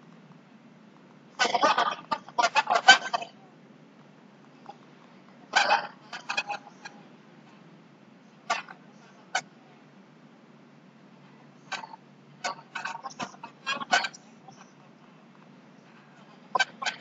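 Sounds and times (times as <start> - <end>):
chicken clucking: 1.4 - 3.4, 5.5 - 7.0, 8.4 - 9.5, 11.6 - 15.2, 15.8 - 17.0.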